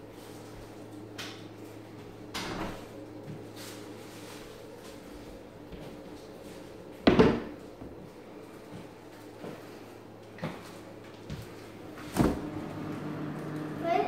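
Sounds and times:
cabinet doors and drawers shutting: 12.0s - 12.9s.

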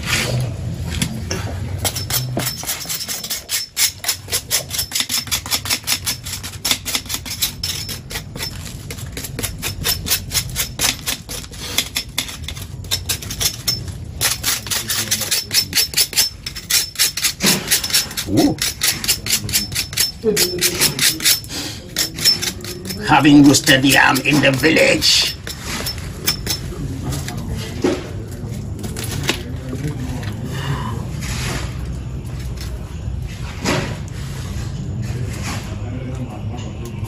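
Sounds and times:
knife scraping skin off yam: 1.9s - 26.5s.

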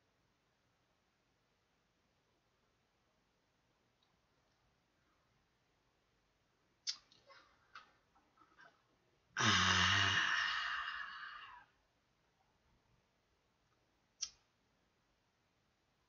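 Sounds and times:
man puffing breath: 9.4s - 11.6s
man sighing loudly: 9.4s - 11.7s.

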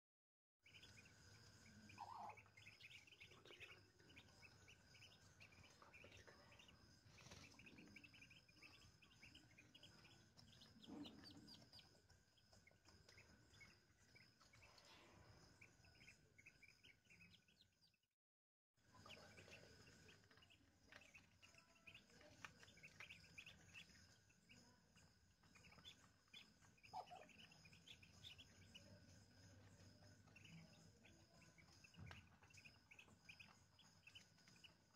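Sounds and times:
ducklings peeping: 0.6s - 18.0s, 18.9s - 34.9s.

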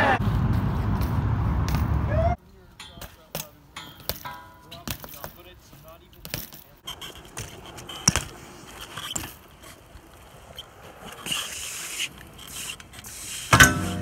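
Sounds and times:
bike tyres rolling on concrete: 0.0s - 14.0s
hissing tyre scrape: 6.8s - 14.0s
bike wheels knocking down: 13.5s - 14.0s.

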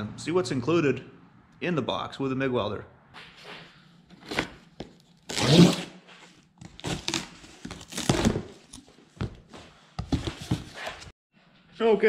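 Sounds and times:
cardboard box tearing and crinkling: 5.2s - 5.9s, 6.6s - 8.7s.

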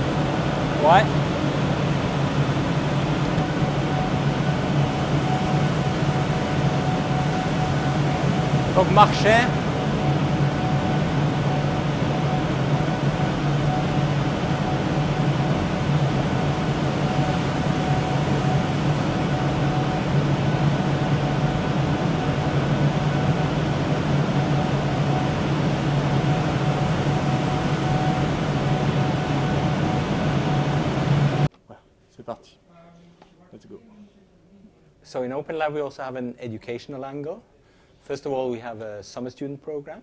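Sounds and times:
server fans whirring: 0.0s - 31.5s
constant low hum: 0.0s - 35.2s.

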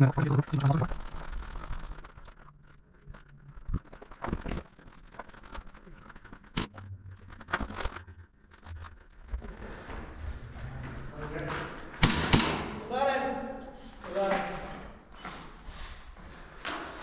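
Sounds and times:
footsteps on concrete floor: 13.8s - 17.0s.

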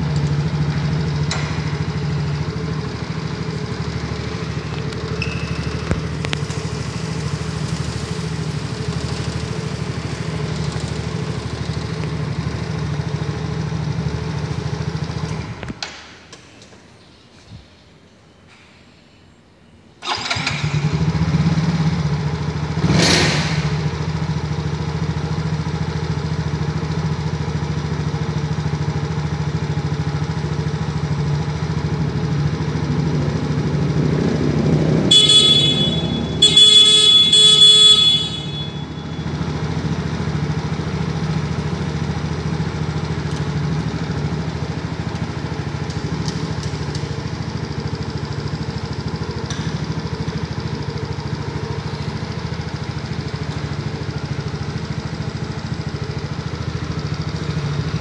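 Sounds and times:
scooter engine idling: 0.0s - 15.8s, 20.0s - 58.0s
scooter horn honking: 35.0s - 41.1s.

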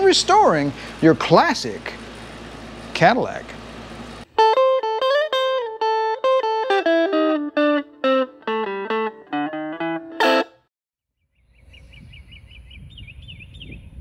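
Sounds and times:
plucked guitar melody: 4.4s - 10.6s.

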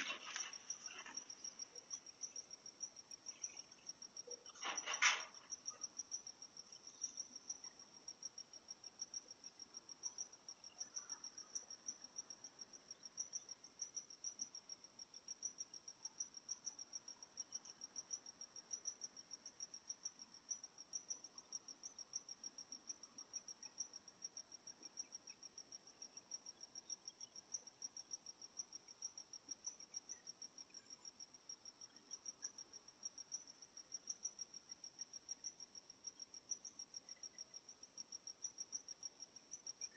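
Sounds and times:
cricket chirping: 0.0s - 39.9s.

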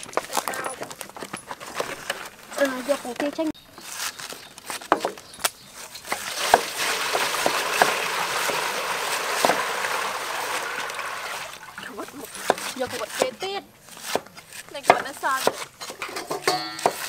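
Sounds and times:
water pouring into steel basin: 6.2s - 12.0s
knives tapping on chopping boards: 14.1s - 17.0s.

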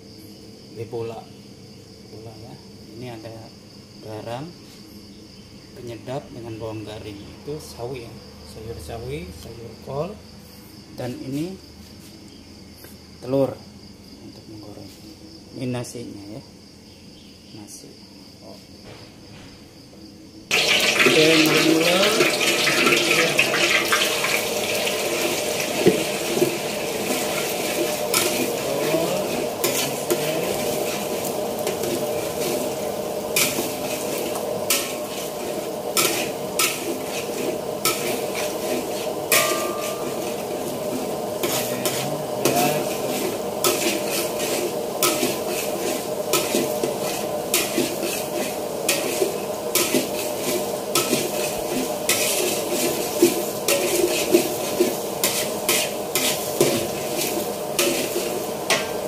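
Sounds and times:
eggs sizzling in hot oil: 20.5s - 59.0s
metal spatula scraping wok: 20.5s - 59.0s.

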